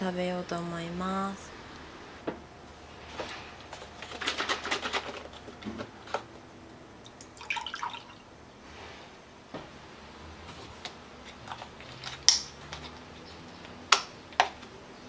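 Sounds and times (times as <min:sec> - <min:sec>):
liquid pouring into a mug: 0:07.0 - 0:08.2.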